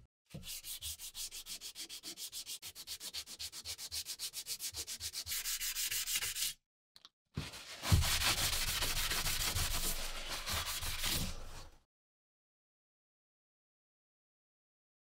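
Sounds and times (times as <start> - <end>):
sandpaper rubbing on metal: 0.6 - 6.6, 7.9 - 11.6.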